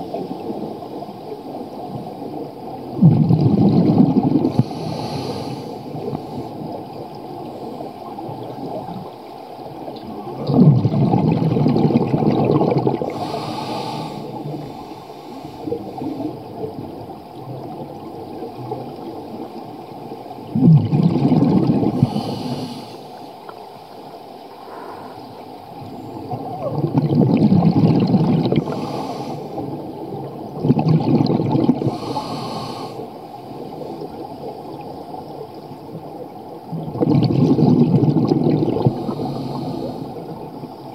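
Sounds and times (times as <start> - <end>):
exhaled bubbles gushing: 0.0 - 5.1, 5.7 - 14.8, 15.6 - 22.6, 25.8 - 32.7, 33.4 - 40.9
diver inhaling through regulator: 4.5 - 6.6, 13.0 - 16.3, 21.8 - 23.2, 24.6 - 25.4, 28.4 - 29.7, 31.8 - 33.1, 38.7 - 40.4.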